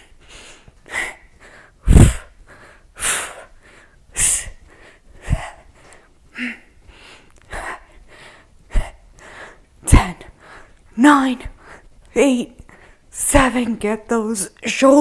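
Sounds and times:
woman breathing hard: 0.0 - 10.9, 11.5 - 12.0, 12.6 - 13.1.

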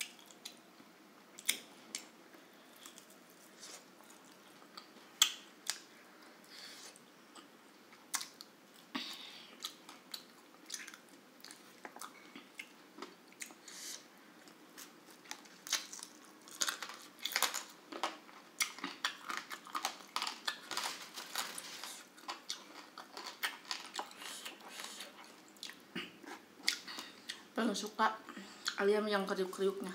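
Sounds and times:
person chewing and biting: 14.8 - 27.4.

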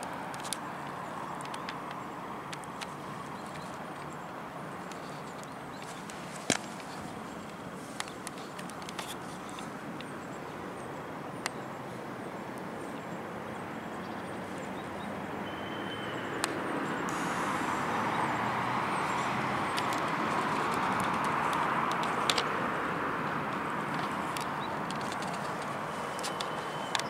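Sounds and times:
outdoor background noise: 0.0 - 27.0
faint chirp: 10.0 - 18.3.

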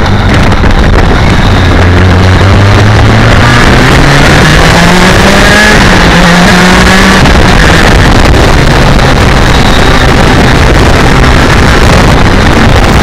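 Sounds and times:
motorcycle engine accelerating: 0.0 - 13.0
wind rush on microphone: 0.0 - 13.0.

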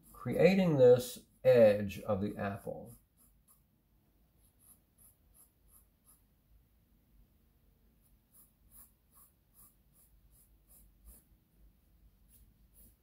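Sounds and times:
pencil scratching on paper: 0.0 - 0.6, 2.3 - 3.7, 4.4 - 6.3, 8.0 - 11.4, 12.2 - 13.0.

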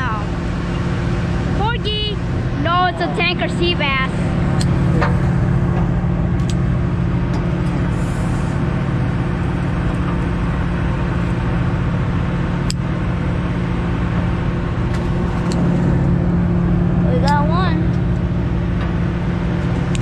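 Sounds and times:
boat engine droning: 0.0 - 20.0.

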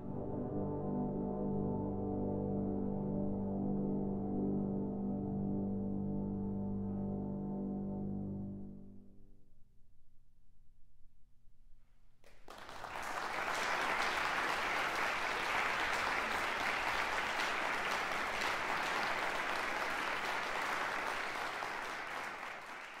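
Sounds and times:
trombone choir chord: 0.0 - 9.1
audience applause: 12.3 - 23.0.

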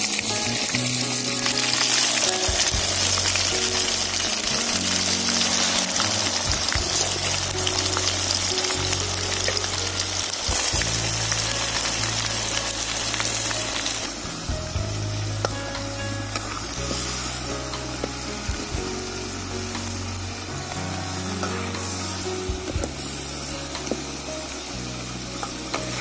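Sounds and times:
background music: 0.0 - 26.0
chicken deep-frying sizzle: 0.0 - 26.0.

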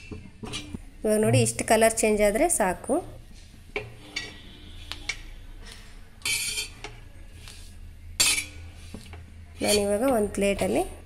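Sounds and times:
metal spatula scraping griddle: 0.4 - 0.8, 3.3 - 10.8.

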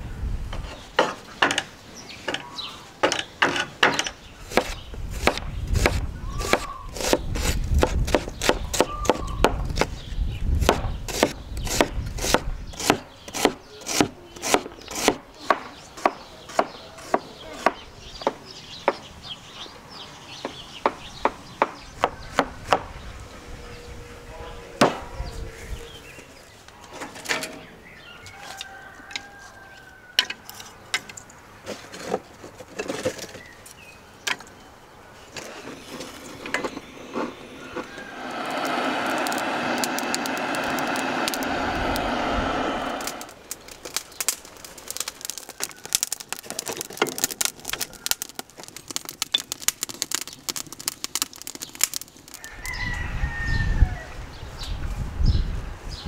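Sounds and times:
rooster crowing: 28.2 - 30.4, 37.1 - 43.3, 52.4 - 54.2
steady rushing noise: 35.9 - 43.6.

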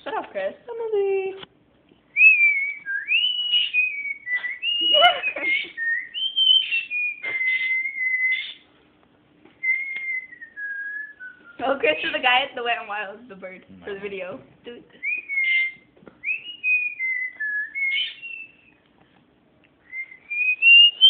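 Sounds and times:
person whistling: 2.2 - 8.6, 9.6 - 11.6, 19.8 - 21.0.

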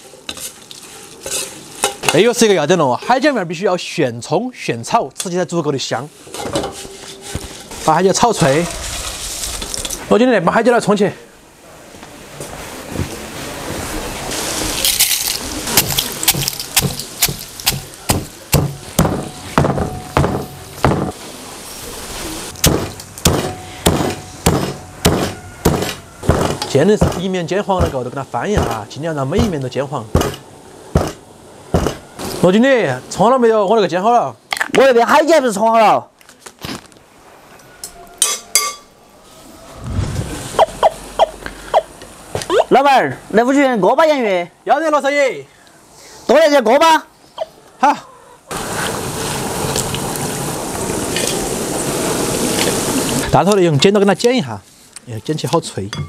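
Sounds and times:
dry rustling: 6.2 - 10.2, 14.4 - 19.6
potatoes frying in oil: 14.3 - 19.0
pestle pounding in stone mortar: 15.8 - 21.2, 22.6 - 27.2, 27.8 - 28.0, 28.6 - 28.8, 30.2 - 30.4, 31.0 - 31.2.

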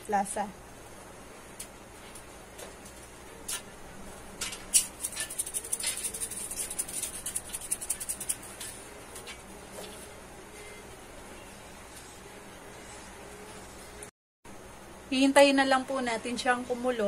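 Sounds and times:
seasoning rattling from container: 4.8 - 8.7.

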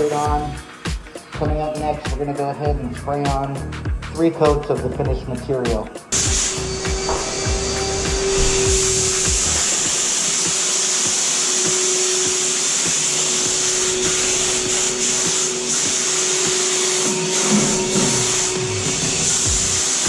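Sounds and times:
spray gun hissing: 6.1 - 20.0
turbine whine: 6.1 - 20.0.

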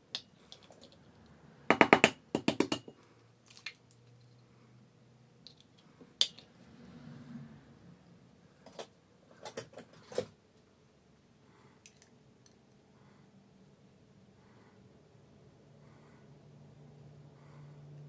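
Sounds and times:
eggshell tapping: 1.7 - 3.0.

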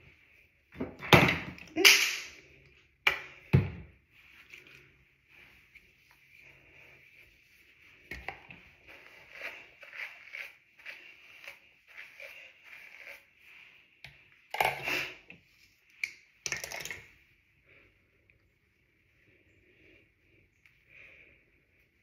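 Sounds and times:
hair rustling under comb: 4.1 - 14.0.

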